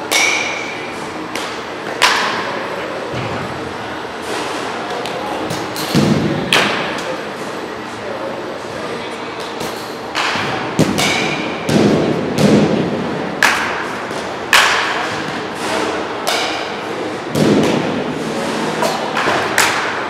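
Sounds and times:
bat hitting balls with ringing: 0.0s - 2.5s, 9.6s - 12.8s, 13.4s - 17.9s.

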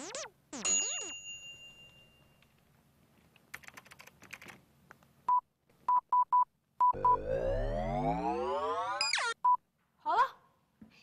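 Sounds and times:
keyboard keys clicking: 3.4s - 4.6s
short electronic beeps: 5.9s - 7.4s.

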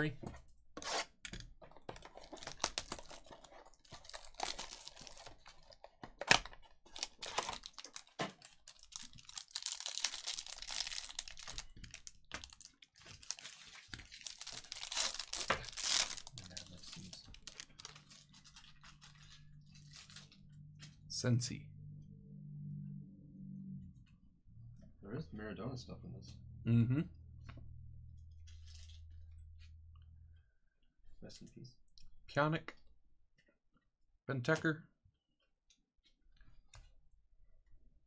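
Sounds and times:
plastic wrapper tearing and crinkling: 2.0s - 20.4s.

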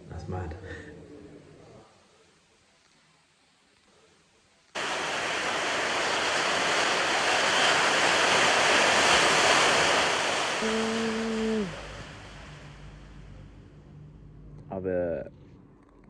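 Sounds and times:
low steady hum: 4.7s - 16.0s
water rushing in boat wake: 4.8s - 13.3s.

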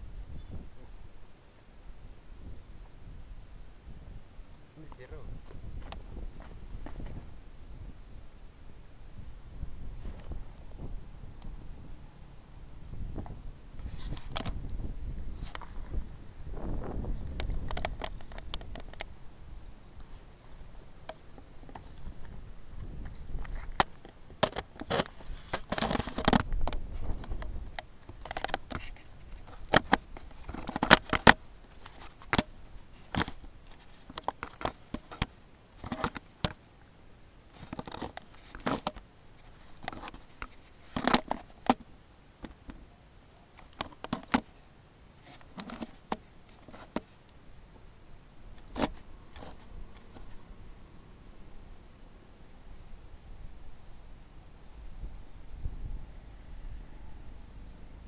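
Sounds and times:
crackles in dry grass: 0.0s - 50.8s
faint high whine: 0.0s - 58.0s
camera handling noise: 13.8s - 14.8s, 17.3s - 19.1s, 23.0s - 36.6s, 37.6s - 41.8s, 45.2s - 47.2s, 48.6s - 50.4s.

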